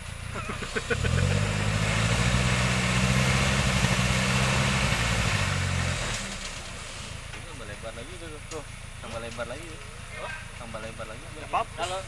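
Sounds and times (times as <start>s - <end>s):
off-road vehicle engine running: 0.0s - 12.0s.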